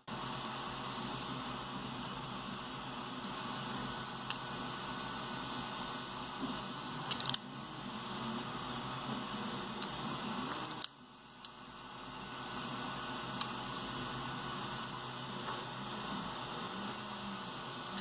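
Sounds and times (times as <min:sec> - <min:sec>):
plastic parts clicking: 0:07.1 - 0:07.4.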